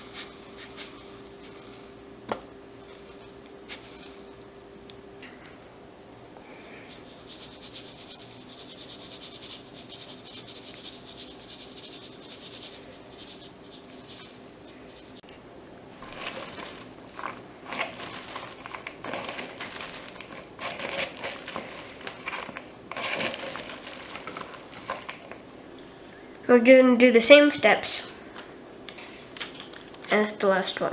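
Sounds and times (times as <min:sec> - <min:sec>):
salt pouring hiss: 0:00.0 - 0:02.0, 0:02.7 - 0:04.4, 0:06.8 - 0:15.2
cabbage crunching rustles: 0:16.0 - 0:25.3.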